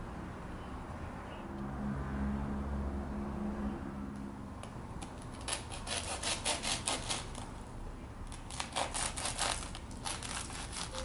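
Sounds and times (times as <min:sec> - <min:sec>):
bread knife sawing through crispy food: 0:05.3 - 0:07.5, 0:08.4 - 0:11.0.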